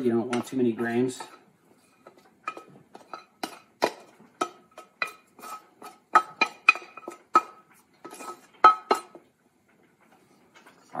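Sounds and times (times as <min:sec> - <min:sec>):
spatula clanking on steel pan: 0:02.4 - 0:09.2.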